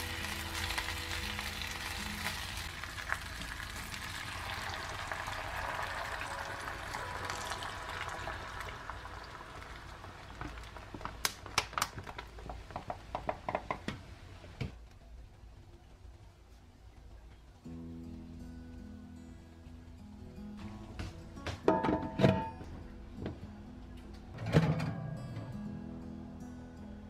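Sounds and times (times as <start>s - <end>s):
meat sizzling in a pan: 0.0s - 11.4s
beer pouring from a can: 0.0s - 12.3s
fat crackling and popping: 0.0s - 15.0s.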